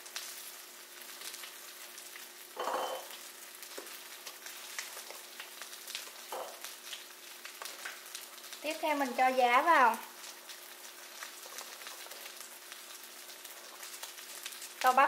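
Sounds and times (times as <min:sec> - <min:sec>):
soup pot hissing and crackling: 0:00.0 - 0:15.0.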